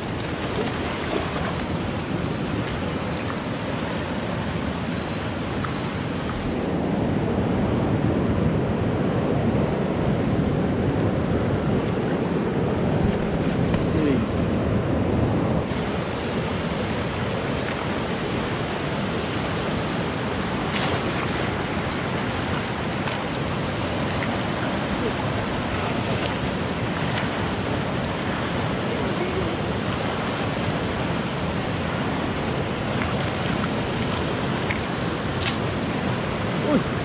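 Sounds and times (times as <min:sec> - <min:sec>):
river flowing over rocks: 0:00.0 - 0:06.8, 0:14.8 - 0:37.0.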